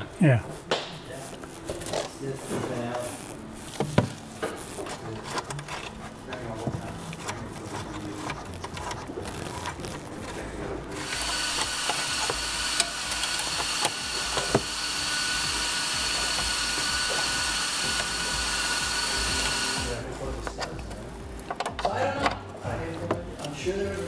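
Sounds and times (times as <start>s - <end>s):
drill with wire brush scrubbing metal: 11.0s - 20.1s.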